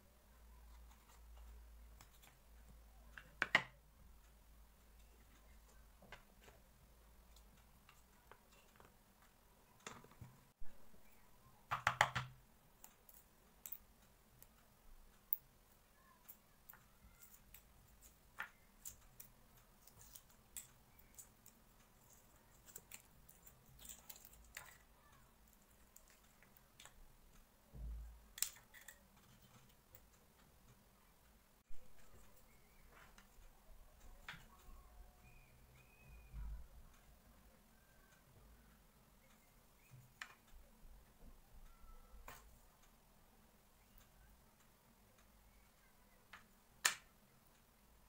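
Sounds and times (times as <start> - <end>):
eggshell crackling: 16.3 - 27.4.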